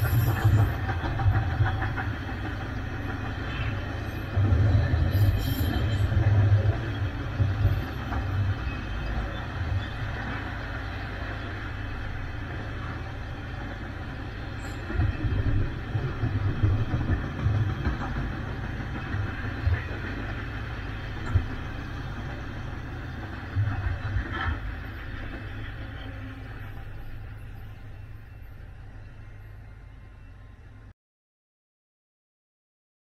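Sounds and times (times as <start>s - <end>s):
low thumps of train cars: 0.0s - 10.6s, 14.5s - 27.1s
freight train rumbling on rails: 0.0s - 30.9s.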